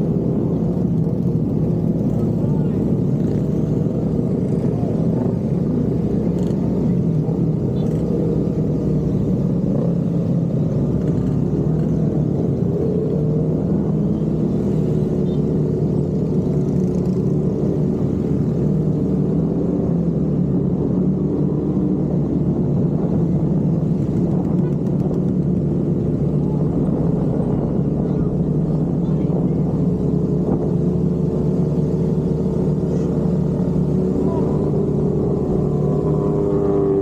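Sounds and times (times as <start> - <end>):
motorcycle engines droning: 0.0 - 37.0.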